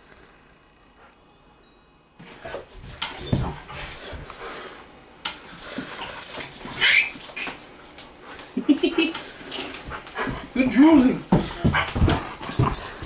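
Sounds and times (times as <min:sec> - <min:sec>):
bumps and rustles: 0:02.2 - 0:04.4, 0:11.2 - 0:13.0.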